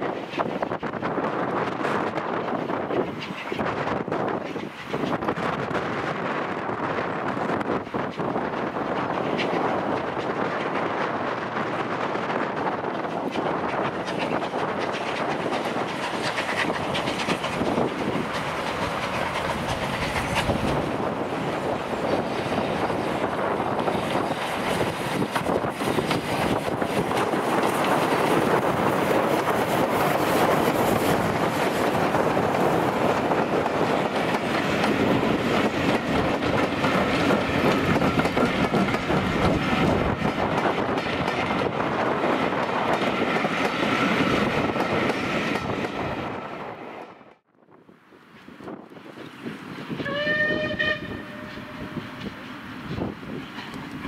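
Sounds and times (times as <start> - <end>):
wheels clattering over rail joints: 12.8 - 46.2.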